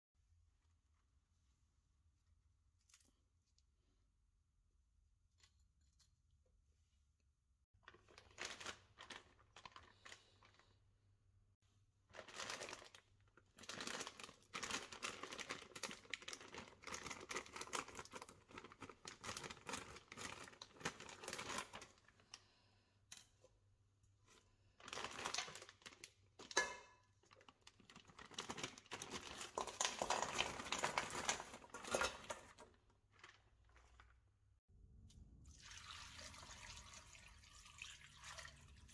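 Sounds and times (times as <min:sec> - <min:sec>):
plastic bag crinkling: 0:07.8 - 0:10.8, 0:12.1 - 0:22.4, 0:24.3 - 0:34.4.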